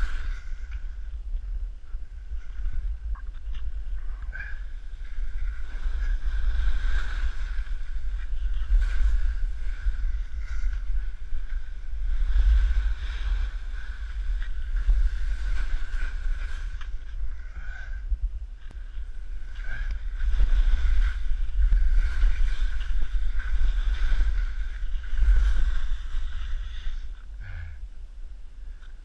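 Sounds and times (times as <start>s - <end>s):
wind buffeting microphone: 0.0s - 29.0s
skis hissing over snow: 19.1s - 27.2s.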